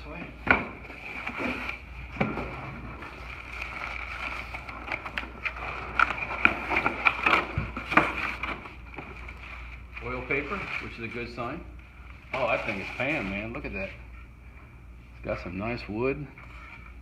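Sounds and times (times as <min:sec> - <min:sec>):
oil paper crinkling: 0:03.0 - 0:07.5.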